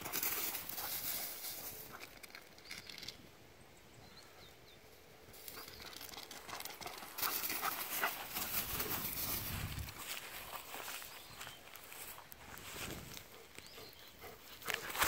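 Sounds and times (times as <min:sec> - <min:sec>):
small bird chirping: 0:10.8 - 0:12.2, 0:13.2 - 0:14.6.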